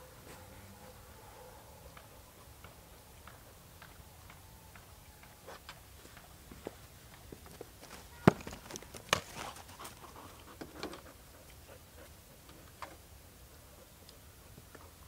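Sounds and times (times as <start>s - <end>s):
dog panting: 9.3s - 12.6s.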